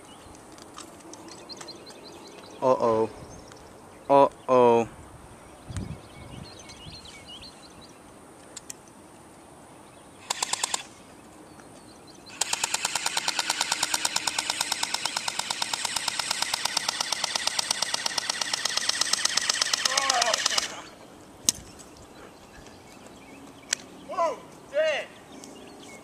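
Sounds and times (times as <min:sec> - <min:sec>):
airsoft guns firing bursts: 0:10.2 - 0:10.9, 0:12.3 - 0:20.9.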